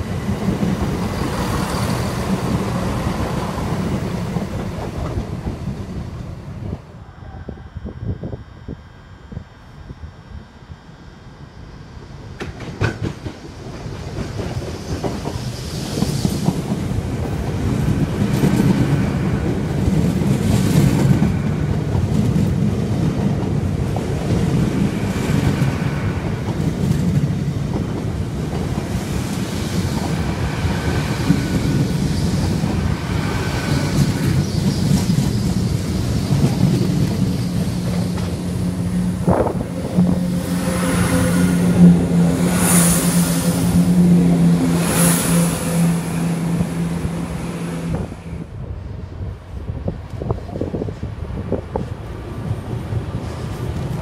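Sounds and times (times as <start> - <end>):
passenger train passing: 0.0 - 54.0
coaches clattering on rails: 12.3 - 46.9.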